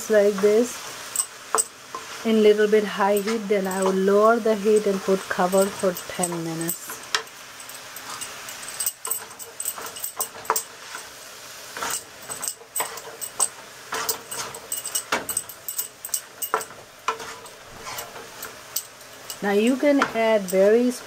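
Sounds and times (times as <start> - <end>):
faint sizzle: 0.0 - 21.0
spatula scraping pan: 7.9 - 21.0.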